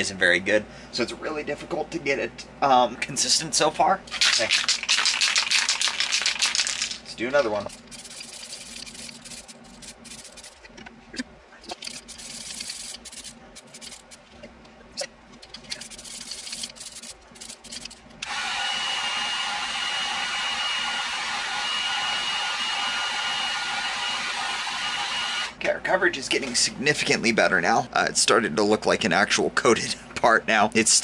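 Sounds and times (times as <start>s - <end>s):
spray can hissing in bursts: 4.5s - 7.0s
heat gun running with high whine: 15.7s - 25.6s.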